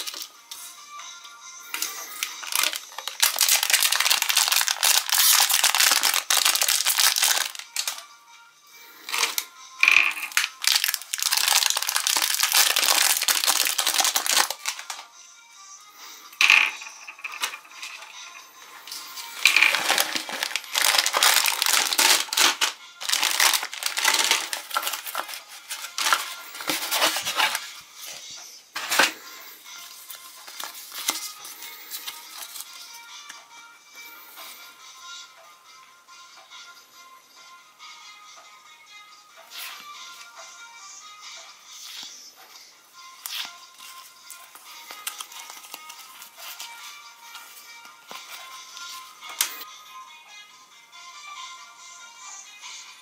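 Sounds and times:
cellophane wrapper crinkling: 0.0s - 0.3s, 1.8s - 8.0s, 9.1s - 15.0s, 18.9s - 27.8s, 30.0s - 32.9s, 43.2s - 49.7s.

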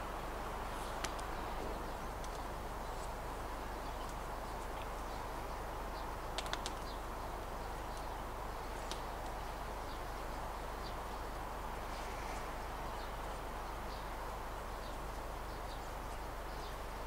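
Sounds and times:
woodland background hiss: 0.0s - 17.0s
sharp clicks: 6.4s - 6.8s.

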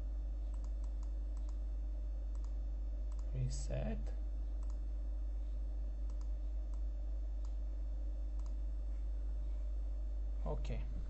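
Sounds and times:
steady low hum: 0.0s - 11.0s
faint computer mouse clicks: 2.3s - 3.3s, 4.6s - 4.8s, 6.1s - 6.8s, 8.4s - 8.6s.

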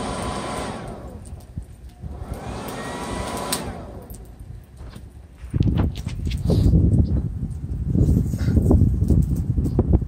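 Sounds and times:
hair dryer motor whine: 0.0s - 1.3s, 2.1s - 4.2s.

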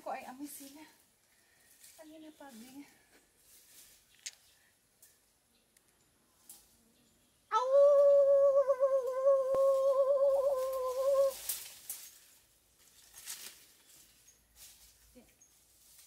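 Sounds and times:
person singing a high note: 7.5s - 11.4s.

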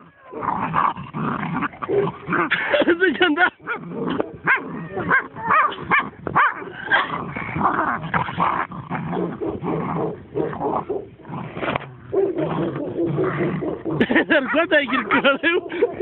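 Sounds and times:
small dog barking and yipping: 3.7s - 7.1s.

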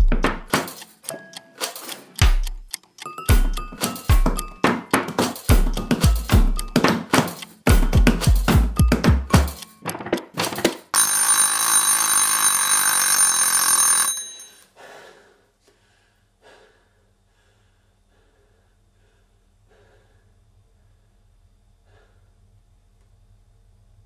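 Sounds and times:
heavy percussive music hits: 0.0s - 1.0s, 1.6s - 2.7s, 3.3s - 10.8s
bell-like ringing: 11.0s - 14.6s.

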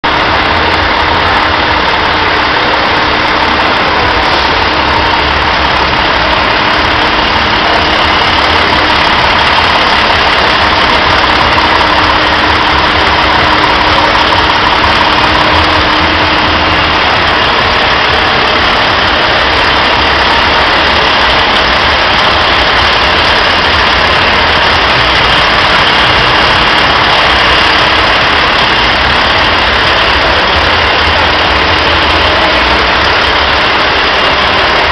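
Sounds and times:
diesel truck engine idling: 0.0s - 34.9s.

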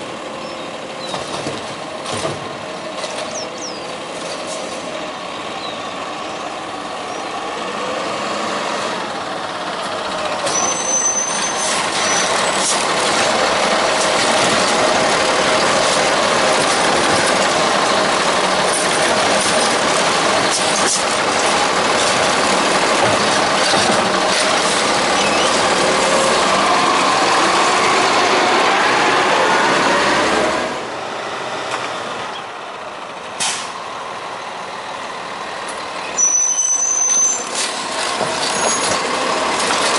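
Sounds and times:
garbage truck engine revving: 0.1s - 32.3s
air brake squeal: 10.4s - 12.6s, 33.4s - 33.7s, 36.0s - 37.6s, 38.4s - 39.0s.

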